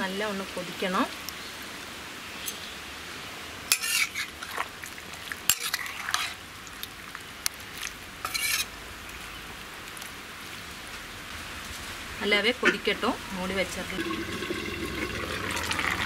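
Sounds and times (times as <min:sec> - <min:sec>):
spatula scraping a pan: 0:03.7 - 0:04.3, 0:05.5 - 0:06.4, 0:08.2 - 0:08.7.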